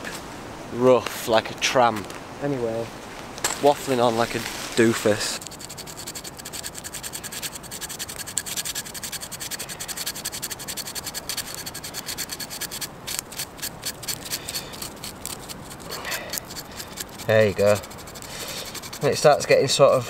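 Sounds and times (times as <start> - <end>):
knife scraping bark: 4.2 - 20.0.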